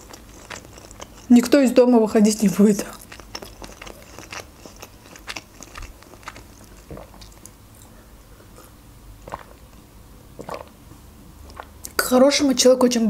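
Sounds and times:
wet mouth sounds: 0:00.0 - 0:01.6, 0:02.4 - 0:12.0
chewing crunchy food: 0:00.0 - 0:08.0, 0:08.6 - 0:10.8, 0:11.4 - 0:12.0
gulp of drink: 0:10.4 - 0:10.7.

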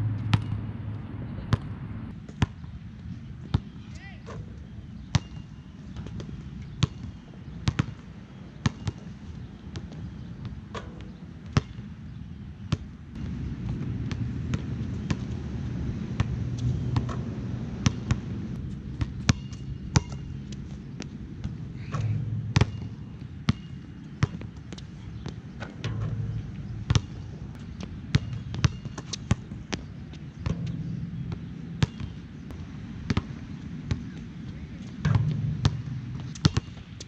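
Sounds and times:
low hum: 0:00.0 - 0:02.2, 0:13.2 - 0:24.0, 0:25.8 - 0:28.8, 0:30.4 - 0:37.0
basketballs bouncing: 0:05.9 - 0:08.0, 0:12.7 - 0:15.4, 0:17.8 - 0:32.5, 0:34.8 - 0:37.0.

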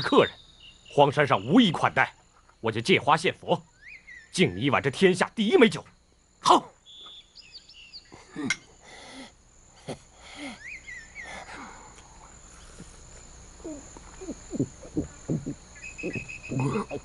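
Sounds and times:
bird chirps: 0:00.0 - 0:02.6, 0:03.6 - 0:04.8, 0:06.8 - 0:08.3, 0:10.5 - 0:11.5, 0:13.6 - 0:17.0
insects buzzing: 0:00.0 - 0:17.0.

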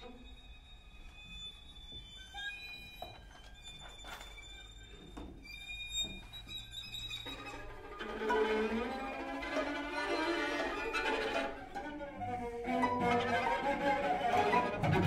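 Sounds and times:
string quartet high held tones: 0:07.4 - 0:15.0.

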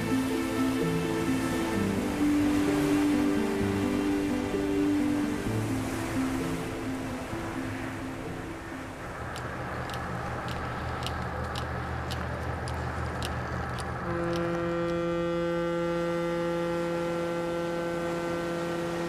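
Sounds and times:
ship's horn blast: 0:00.0 - 0:08.7, 0:14.0 - 0:19.0
ship engine hum: 0:00.0 - 0:19.0
faint ticks: 0:09.3 - 0:15.0.

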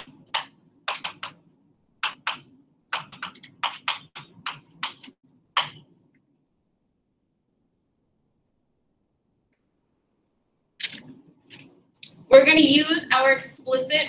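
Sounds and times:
marker writing on a board: 0:02.0 - 0:05.8.

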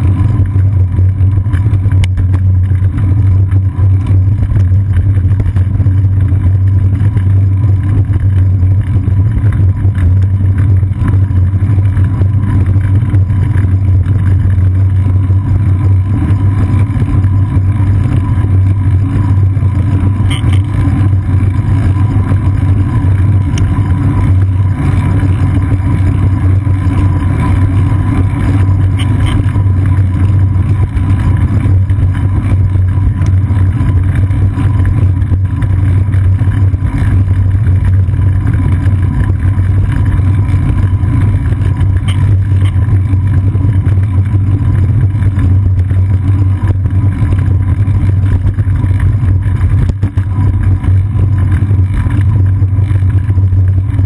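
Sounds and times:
wind buffeting and road rumble: 0:00.0 - 0:54.0
thin steady tone: 0:19.8 - 0:21.1, 0:27.0 - 0:30.0, 0:41.9 - 0:42.9.

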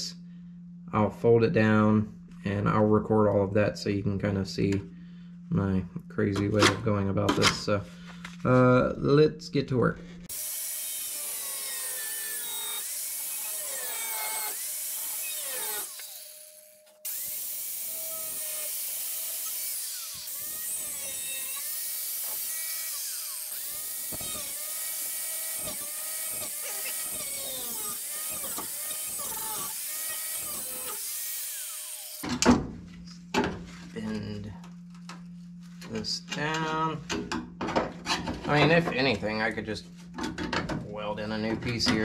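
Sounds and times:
power tool cutting sheet metal: 0:10.3 - 0:32.3.

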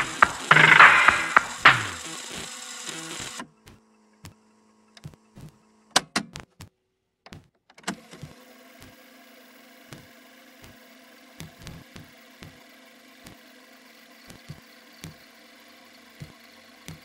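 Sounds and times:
sharp clicks: 0:00.0 - 0:02.1
music: 0:00.0 - 0:03.3
vcr rewinding tape whir: 0:00.0 - 0:03.4.

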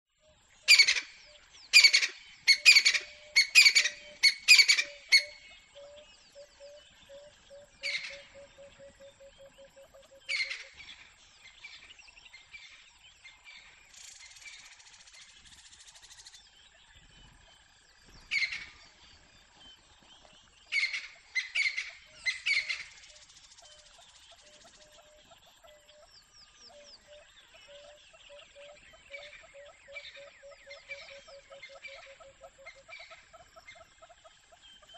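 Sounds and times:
faint birds: 0:00.1 - 0:34.9
francolin calling: 0:00.6 - 0:10.9, 0:20.7 - 0:34.9.

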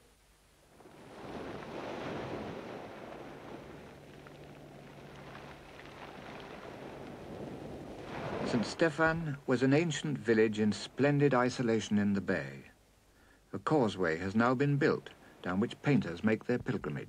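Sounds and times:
waves washing onto pebble beach: 0:00.8 - 0:09.4.

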